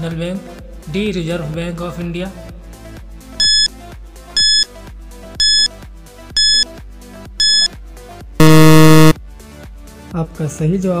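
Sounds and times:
loud low buzzer: 3.4s - 3.7s, 4.4s - 4.6s, 5.4s - 5.7s, 6.4s - 6.6s, 7.4s - 7.7s, 8.4s - 9.2s
short high electronic beeps: 3.4s - 3.7s, 4.4s - 4.6s, 5.4s - 5.7s, 6.4s - 6.6s, 7.4s - 7.7s, 8.4s - 9.2s.

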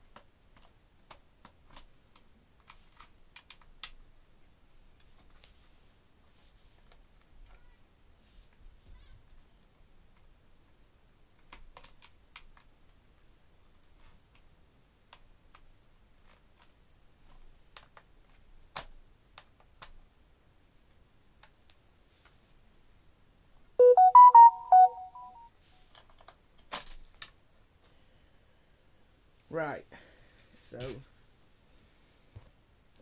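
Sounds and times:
electronic beeping tune: 23.8s - 25.5s.

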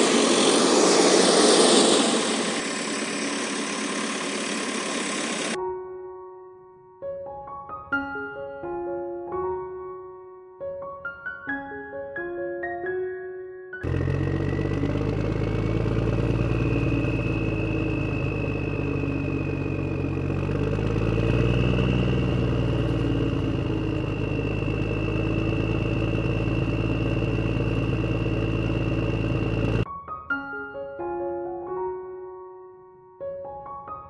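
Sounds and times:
backhoe engine running: 0.0s - 5.6s, 13.8s - 29.8s
thin high whine: 0.0s - 5.6s, 15.3s - 29.8s.

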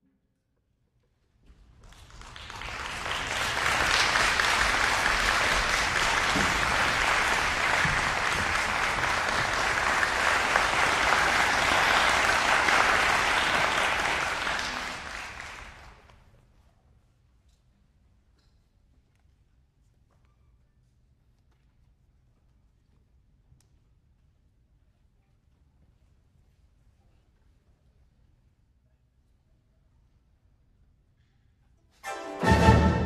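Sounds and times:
audience applauding: 1.8s - 16.1s.

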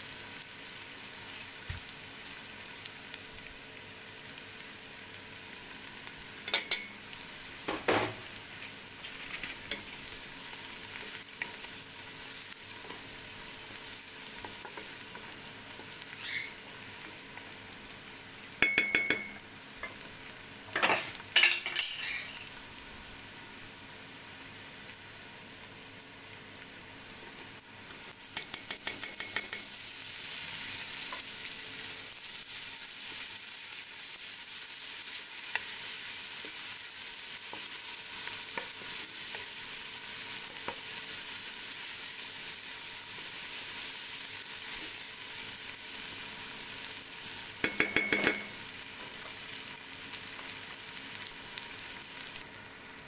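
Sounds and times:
food sizzling in oil: 0.0s - 53.0s
spoon knocking on metal pot: 18.6s - 19.4s, 28.4s - 29.7s, 47.6s - 48.5s.

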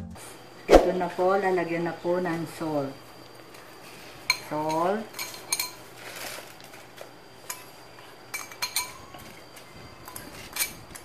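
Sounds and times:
metal spoon clinking on ceramic bowl: 8.3s - 9.1s.

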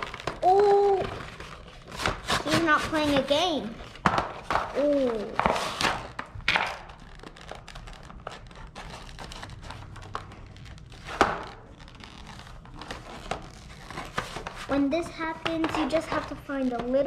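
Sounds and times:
packaging crinkling and rustling: 0.0s - 14.8s.

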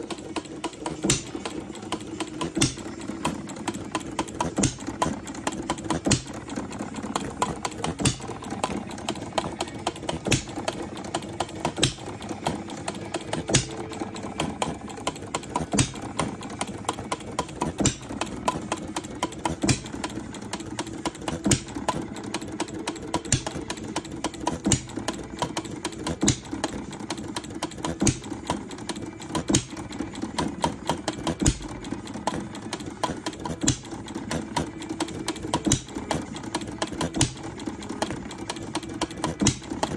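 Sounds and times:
small engine clattering: 0.0s - 39.9s
engine firing pops: 0.1s - 16.4s, 17.1s - 20.1s, 27.8s - 39.9s.

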